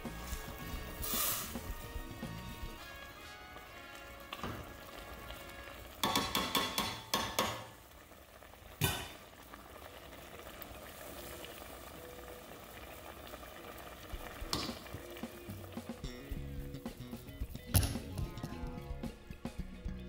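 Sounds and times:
liquid sizzling and simmering: 0:00.0 - 0:20.0.

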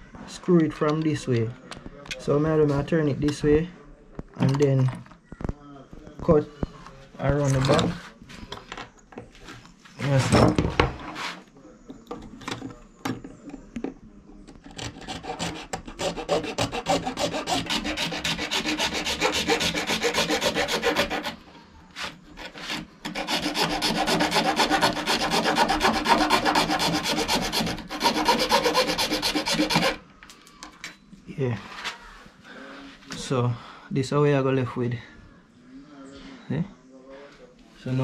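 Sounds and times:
hacksaw blade sawing: 0:14.6 - 0:21.4, 0:22.0 - 0:30.0.

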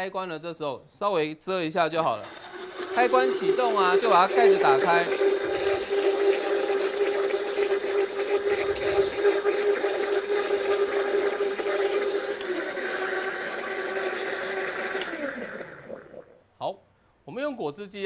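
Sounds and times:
blender motor whine: 0:02.1 - 0:16.4
liquid churning: 0:02.1 - 0:16.4.

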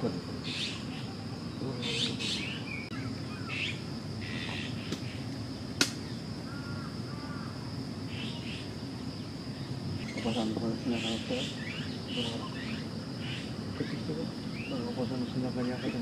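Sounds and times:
insect trilling: 0:00.0 - 0:16.0
sharp click: 0:05.8 - 0:06.0.

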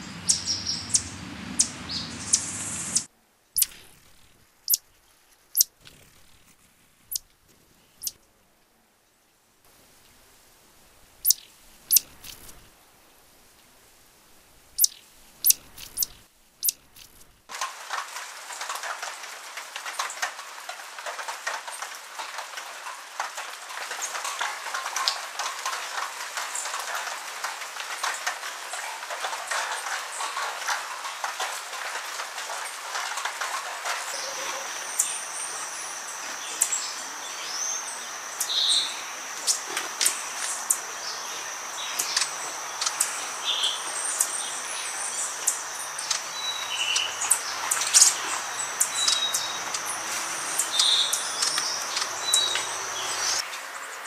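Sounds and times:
bird chirps: 0:00.0 - 0:03.9, 0:11.2 - 0:12.5, 0:14.8 - 0:16.8, 0:40.6 - 0:49.8, 0:50.4 - 0:53.4
rain patter and dripping: 0:00.0 - 0:05.7, 0:09.6 - 0:54.0.

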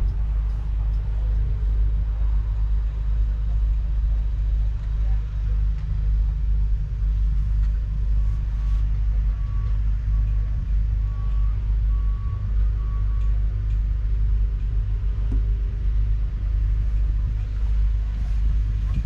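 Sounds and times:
steady low rumble: 0:00.0 - 0:19.0
faint high beep: 0:08.2 - 0:13.5.

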